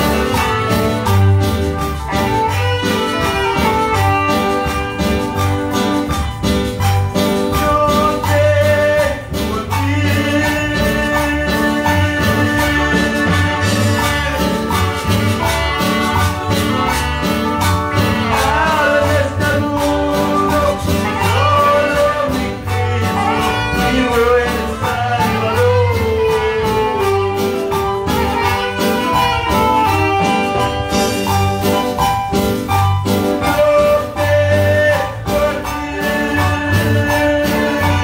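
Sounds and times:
person singing over a band: 7.4s - 15.8s, 17.8s - 31.3s, 33.3s - 38.0s.

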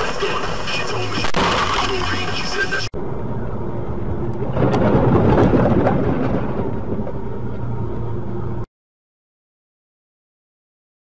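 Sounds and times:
vehicle engine hum and road noise: 0.0s - 8.7s.

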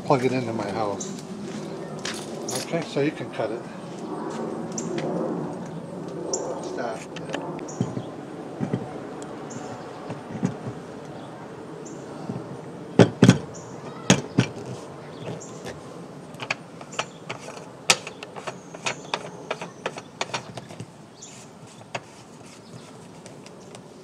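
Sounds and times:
light clicks and scrapes: 14.5s - 24.0s.

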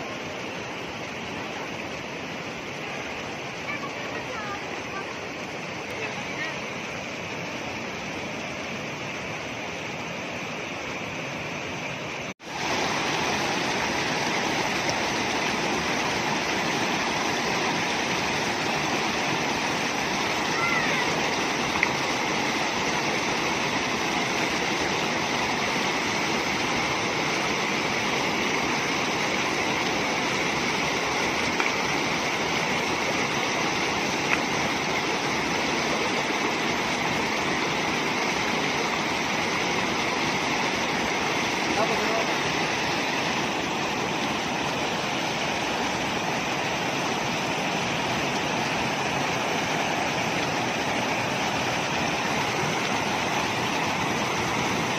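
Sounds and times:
stream rushing over rocks: 0.0s - 54.9s.

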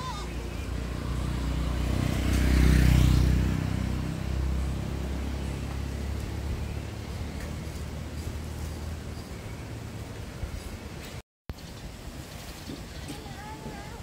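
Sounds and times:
vehicle engine running: 0.1s - 10.9s.

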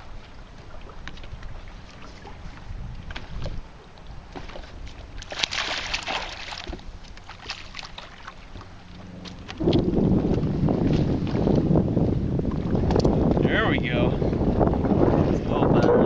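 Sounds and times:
wind rumble on microphone: 0.0s - 16.0s
fish splashing at water surface: 4.4s - 11.4s.

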